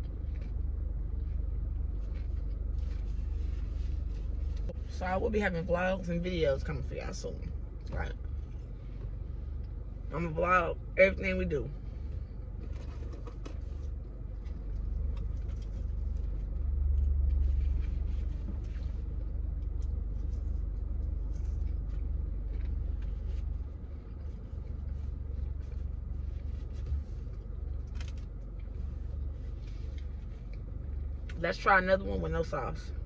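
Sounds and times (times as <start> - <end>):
low car cabin rumble: 0.0 - 33.0
crunchy chewing: 12.2 - 30.9.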